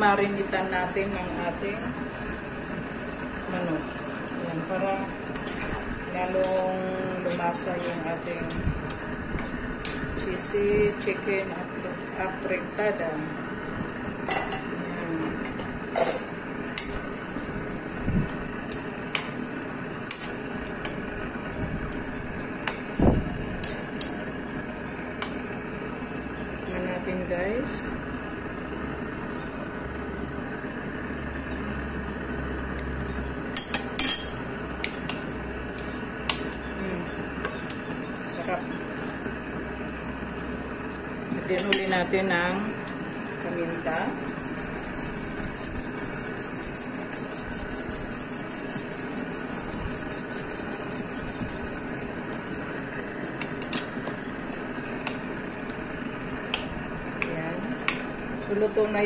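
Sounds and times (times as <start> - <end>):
steady low hum: 0.0 - 59.0
wooden spoon stirring stew: 43.8 - 56.6.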